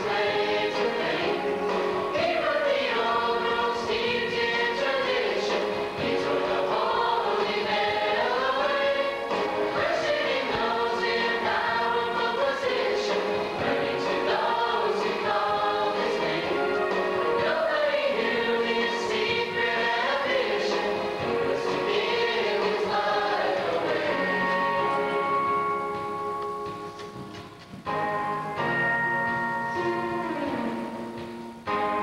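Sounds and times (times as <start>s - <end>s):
mixed choir singing in harmony: 0.0s - 25.6s.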